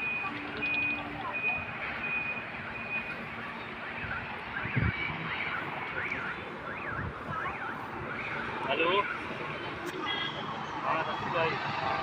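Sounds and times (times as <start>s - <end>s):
steady beep: 0.0s - 3.2s.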